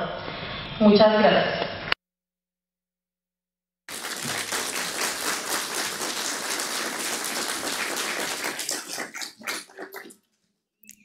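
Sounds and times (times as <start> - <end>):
audience applauding: 3.9 - 10.2.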